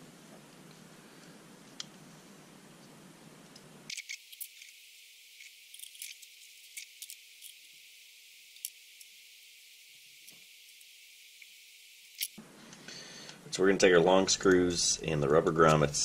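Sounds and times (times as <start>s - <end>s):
small parts clicking: 3.5s - 7.8s, 8.5s - 9.2s, 10.2s - 12.4s.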